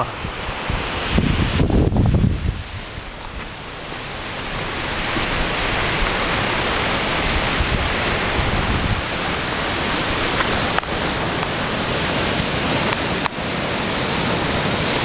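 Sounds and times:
surf breaking on pebble beach: 0.5 - 15.0.

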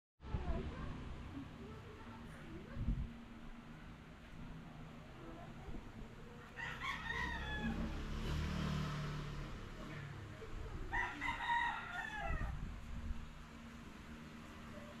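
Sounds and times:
rooster crowing: 6.4 - 8.4, 10.9 - 12.7.

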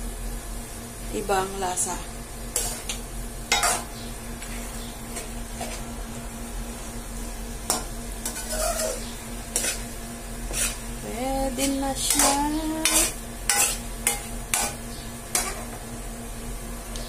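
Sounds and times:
food sizzling in a wok: 0.0 - 17.0
steady low hum: 0.0 - 17.0
spatula scraping a pan: 7.7 - 10.9, 11.6 - 15.8.

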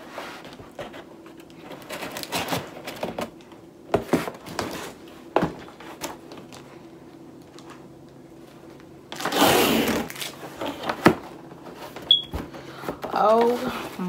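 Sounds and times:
cardboard scraping rustle: 9.2 - 12.1.

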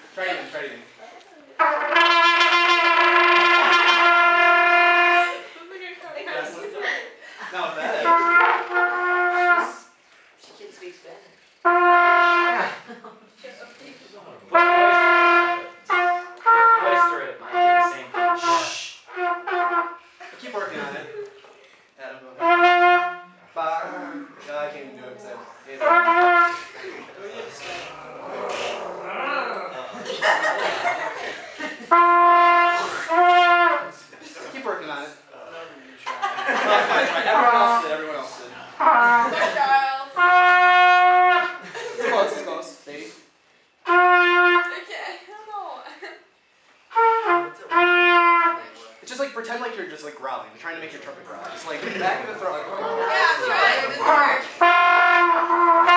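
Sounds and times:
trumpet playing detached notes: 1.6 - 5.5, 8.0 - 10.0, 11.6 - 12.7, 14.5 - 20.2, 22.4 - 23.4, 25.8 - 26.8, 31.9 - 34.0, 38.8 - 39.4, 40.2 - 41.6, 43.8 - 44.8, 46.9 - 48.7, 54.0 - 55.9.

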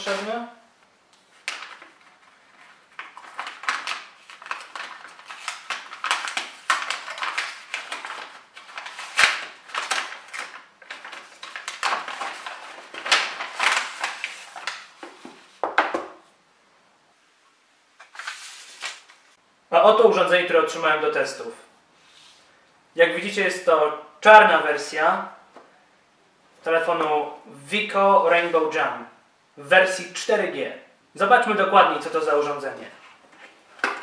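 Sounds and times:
paper envelope crinkling: 1.2 - 15.7, 18.0 - 19.3.

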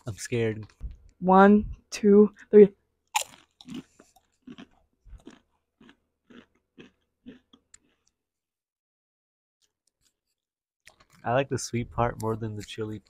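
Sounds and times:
chewing crunches: 3.0 - 8.2, 10.8 - 11.2
chips crunching when bitten: 3.1 - 8.2.

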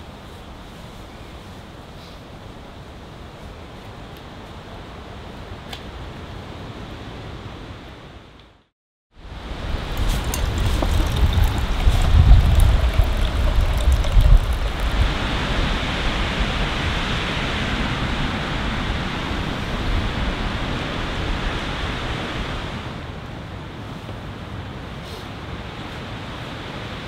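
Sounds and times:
wind rushing through trees: 0.0 - 27.0
wind buffeting microphone: 9.3 - 22.7.

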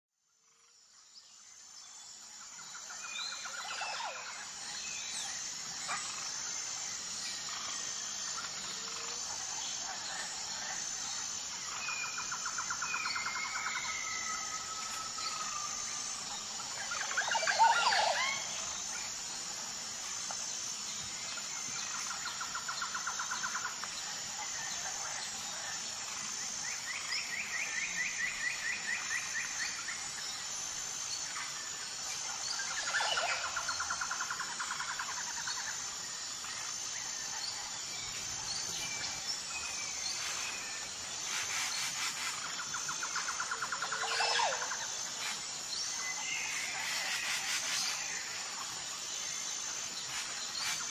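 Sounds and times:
pulsing insect drone: 0.2 - 50.9.

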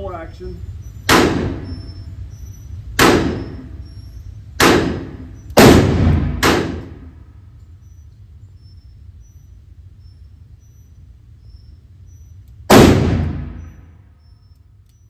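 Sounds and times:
revolver shots echoing indoors: 1.0 - 2.0, 3.0 - 8.0, 12.4 - 14.6.

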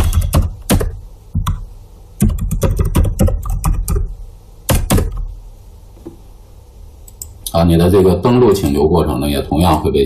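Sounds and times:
computer keyboard keystrokes: 0.0 - 1.6, 2.2 - 4.1.

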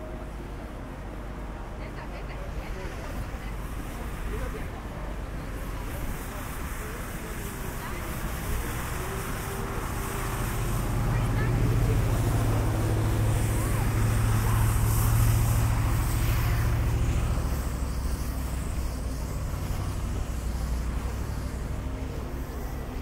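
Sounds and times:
faint outdoor noise: 0.0 - 23.0.

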